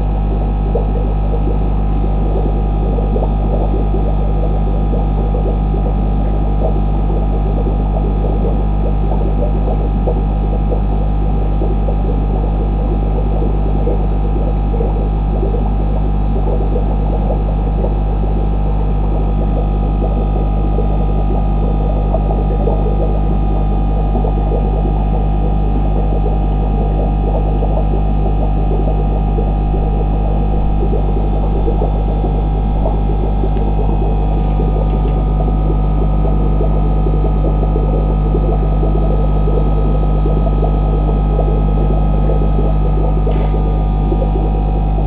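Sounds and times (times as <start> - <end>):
low electrical hum: 0.0 - 45.0.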